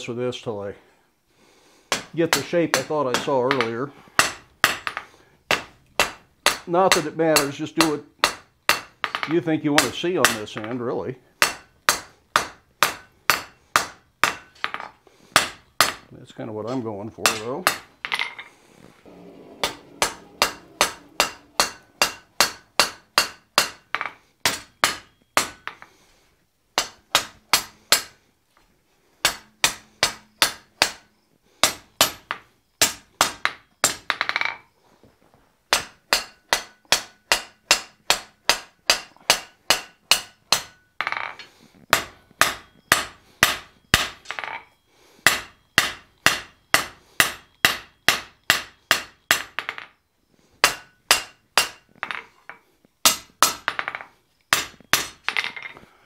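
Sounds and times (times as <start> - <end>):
hammer ringing on anvil: 19.1 - 25.6.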